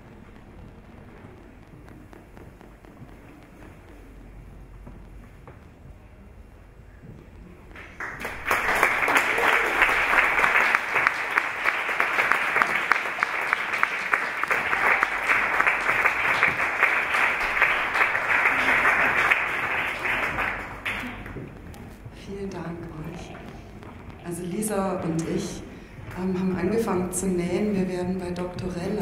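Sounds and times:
audience applauding: 7.8 - 22.1.

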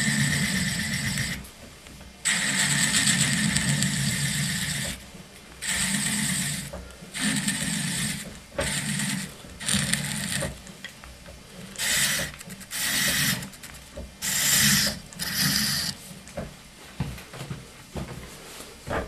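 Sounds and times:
turning tool hissing cuts: 2.3 - 5.0, 5.6 - 10.5, 11.7 - 16.0.

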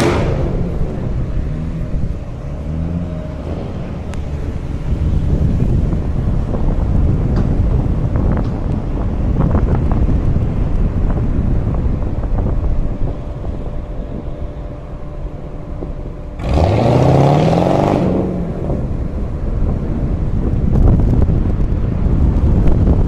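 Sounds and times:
car engine revving: 0.0 - 8.4, 11.8 - 21.6
wind and road rumble: 0.0 - 23.0.

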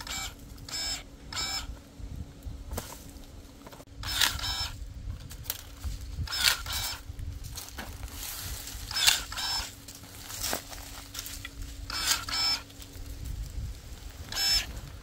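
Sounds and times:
electric pruning shears whirring: 0.0 - 1.8, 3.9 - 15.0
sharp clicks: 6.3 - 7.0, 8.9 - 9.6.

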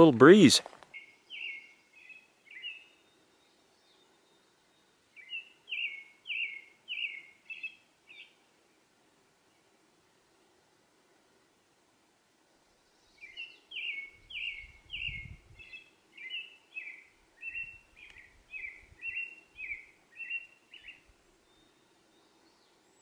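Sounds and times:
songbird calling: 0.9 - 8.4, 12.9 - 23.0.

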